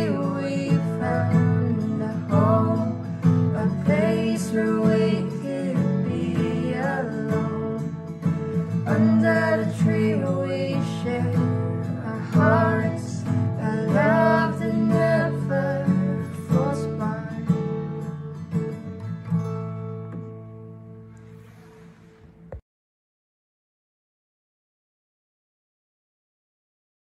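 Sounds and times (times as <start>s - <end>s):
person singing: 0.0s - 8.0s, 8.8s - 18.0s
strummed acoustic guitar: 0.0s - 22.6s.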